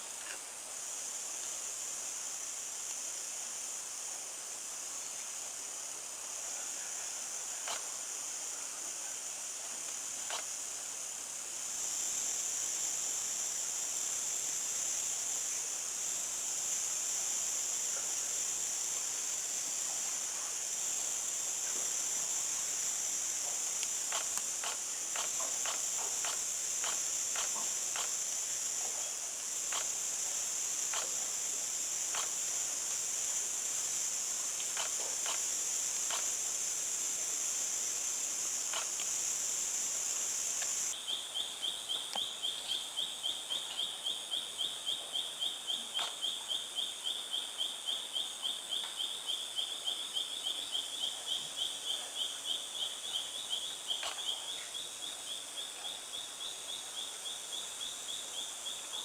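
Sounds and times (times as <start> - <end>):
rhythmic pulsing insect call: 0.0 - 59.0
high-pitched insect drone: 11.7 - 59.0
insect clicks: 23.7 - 28.2, 34.6 - 36.4, 38.7 - 39.2.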